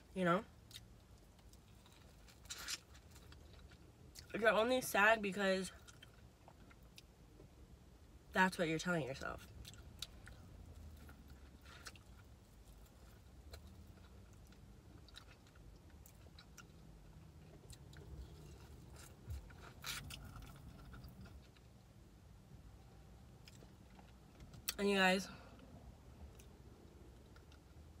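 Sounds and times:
person chewing: 0.7s - 4.3s, 9.6s - 21.6s.

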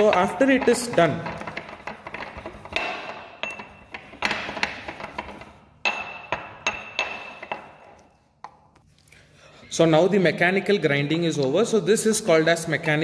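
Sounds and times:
pestle clinking in ceramic mortar: 0.0s - 7.9s.

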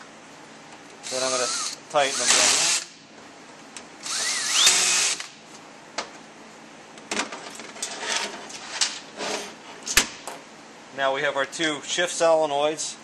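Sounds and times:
power drill whine: 1.0s - 2.8s, 4.0s - 5.3s.

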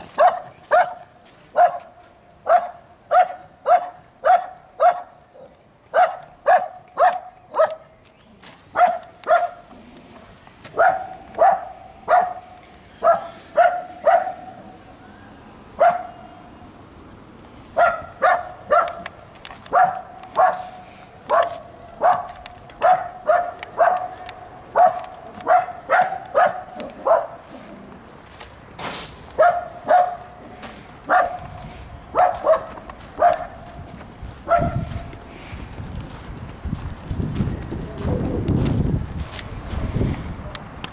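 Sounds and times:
dog barking: 0.2s - 7.9s, 8.7s - 9.6s, 10.8s - 14.7s, 15.8s - 16.3s, 17.8s - 19.1s, 19.7s - 27.4s, 29.4s - 30.3s, 31.0s - 31.5s, 32.1s - 33.7s, 34.4s - 35.1s.

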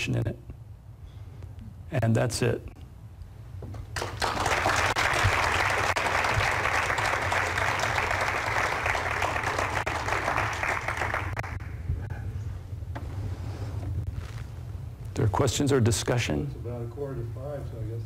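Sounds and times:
low steady hum: 0.0s - 18.0s
audience applauding: 3.9s - 11.8s.

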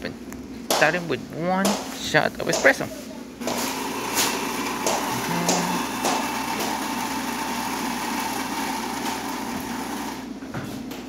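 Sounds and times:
coffee grinder grinding beans: 3.4s - 10.3s.

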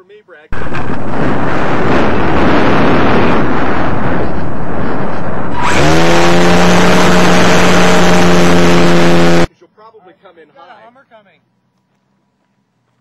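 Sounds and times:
electric motor and propeller whine: 0.6s - 9.5s
wind rushing over microphone: 0.6s - 9.5s.

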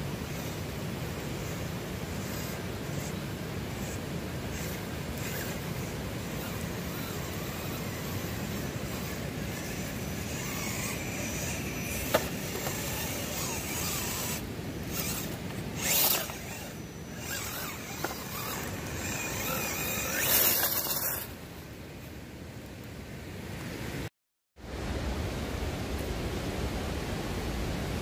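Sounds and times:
faint electric motor whine: 0.0s - 23.8s
tyres scrabbling on rock: 3.8s - 21.3s.

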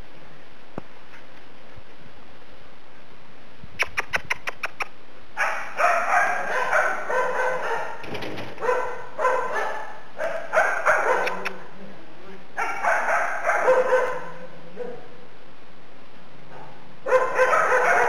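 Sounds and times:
puppies yapping barks: 5.4s - 8.0s, 8.6s - 11.5s, 12.6s - 14.4s, 16.6s - 18.0s.

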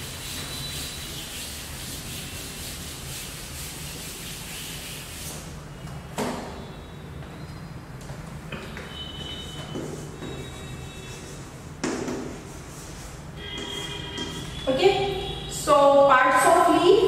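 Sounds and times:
board duster scrubbing chalkboard: 0.0s - 5.5s, 9.6s - 14.6s.

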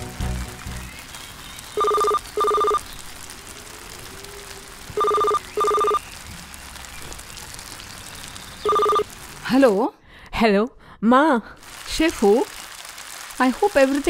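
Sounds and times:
telephone double ring: 5.0s - 6.0s, 8.7s - 9.0s.

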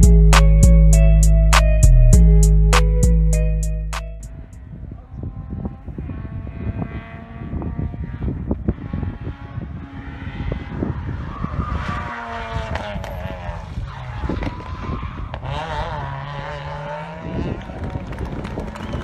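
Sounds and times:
car engine revving hard: 6.1s - 19.0s.

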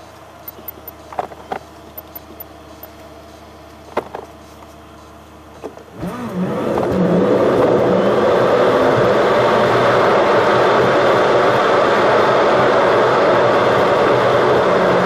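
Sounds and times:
car idling: 0.0s - 5.8s
car engine and road noise: 0.0s - 15.0s.

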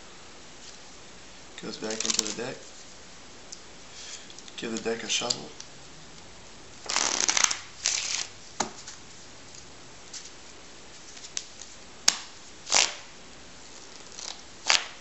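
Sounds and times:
playing cards riffle-shuffled: 1.6s - 3.0s, 6.8s - 13.1s.

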